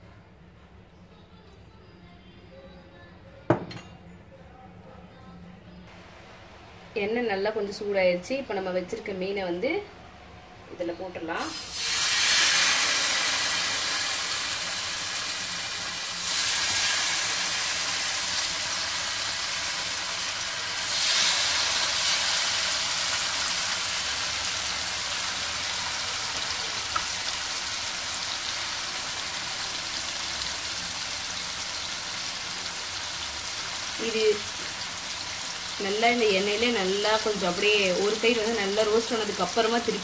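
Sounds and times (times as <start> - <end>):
fish sizzling in hot oil: 11.5 - 40.0.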